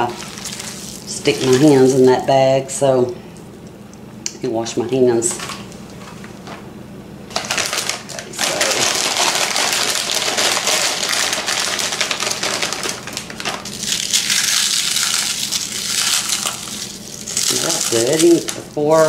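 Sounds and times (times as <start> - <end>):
pork rinds crackling: 0.0 - 2.2, 7.3 - 19.0
plastic bag crinkling: 0.0 - 2.3, 7.3 - 19.0.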